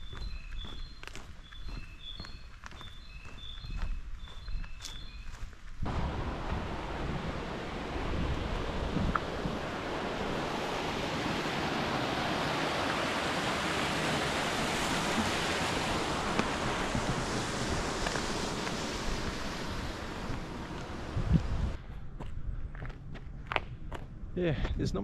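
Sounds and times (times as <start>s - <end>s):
flowing water rushing: 5.9s - 21.8s.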